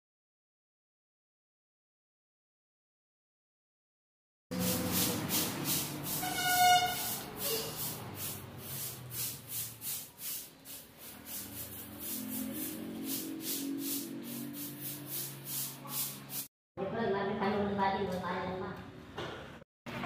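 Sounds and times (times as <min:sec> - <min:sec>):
broom sweeping concrete floor: 0:04.5 - 0:16.5.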